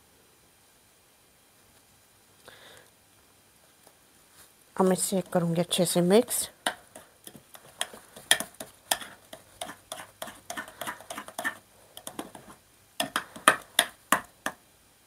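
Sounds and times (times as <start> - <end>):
metal spoon scraping bowl: 7.7 - 13.6
spoon knocking bowl: 7.8 - 14.6.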